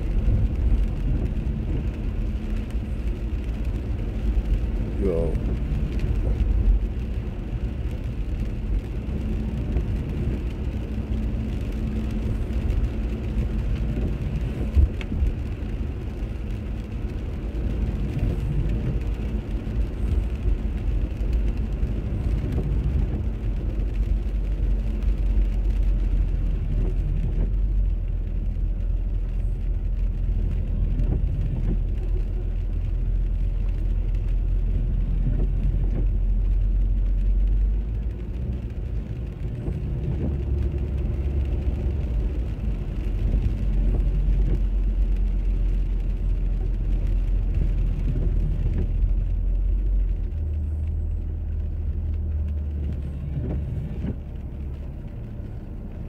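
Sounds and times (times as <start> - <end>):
car engine and road rumble: 0.0 - 56.0
tyres hissing on wet road: 0.0 - 56.0.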